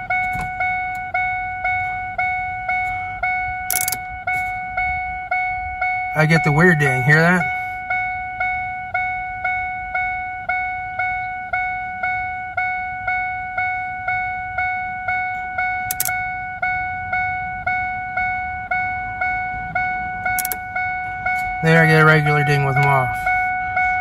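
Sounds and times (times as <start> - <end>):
car warning chime dinging: 0.0 - 24.0
sharp click: 3.7 - 4.0, 15.9 - 16.2, 20.4 - 20.6.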